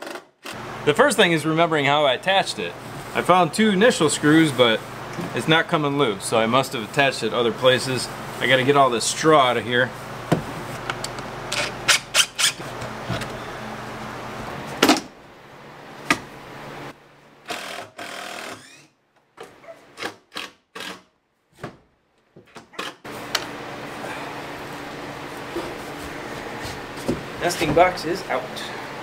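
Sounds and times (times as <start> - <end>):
impact driver bursts: 11.6 - 12.6, 17.5 - 18.9, 20.0 - 21.1
wooden knocks and scraping: 25.5 - 28.0.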